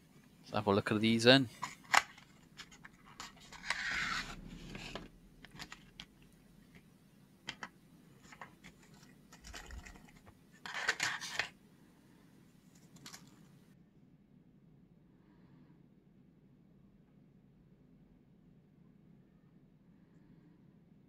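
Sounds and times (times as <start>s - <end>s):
plastic packaging rustling: 1.6s - 6.1s, 7.5s - 11.6s, 12.7s - 13.4s.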